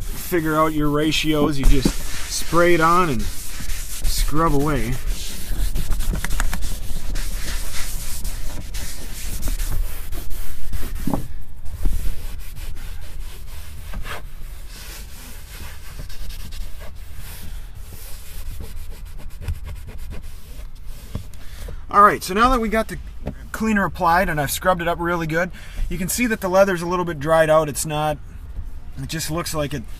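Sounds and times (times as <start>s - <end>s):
brush scrubbing leather: 0.0s - 21.3s.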